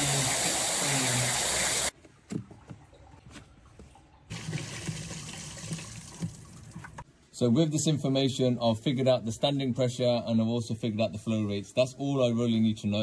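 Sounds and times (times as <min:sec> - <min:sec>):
water gushing from tap: 0:00.0 - 0:01.9, 0:04.3 - 0:07.0
low steady background noise: 0:05.8 - 0:13.0.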